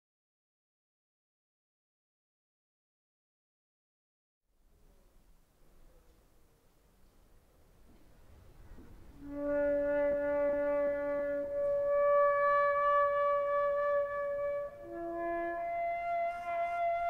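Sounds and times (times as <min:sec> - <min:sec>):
music of long held notes: 0:09.1 - 0:17.0.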